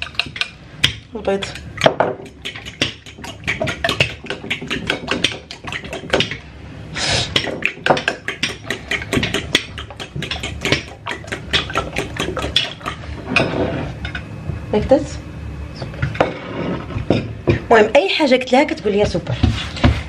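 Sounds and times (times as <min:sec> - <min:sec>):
fork beating eggs in ceramic bowl: 0:00.0 - 0:06.4, 0:07.3 - 0:13.6.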